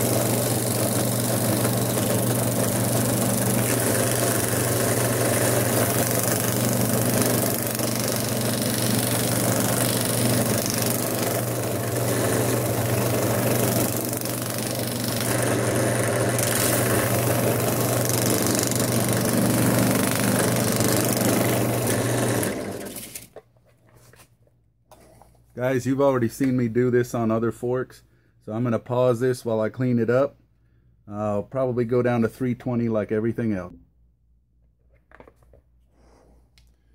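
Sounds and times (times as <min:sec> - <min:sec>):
wood sanding hiss: 0:00.0 - 0:23.2
drill press motor hum: 0:00.0 - 0:23.4.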